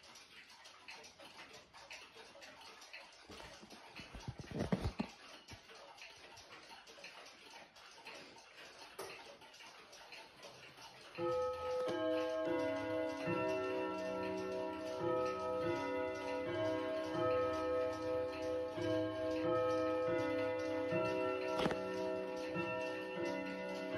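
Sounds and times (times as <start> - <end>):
pendulum clocks ticking: 0.0 - 23.9
wall clock chime melody: 11.1 - 23.9.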